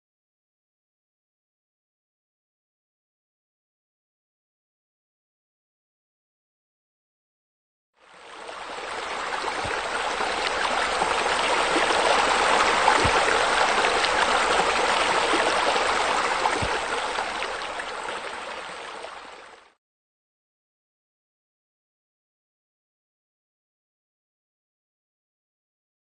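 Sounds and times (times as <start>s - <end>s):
water flowing and splashing: 8.0s - 19.8s.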